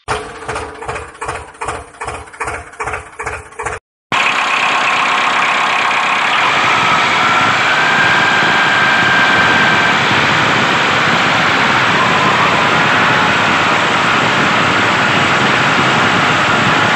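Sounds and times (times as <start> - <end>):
faint wavering whine: 4.3 - 16.9.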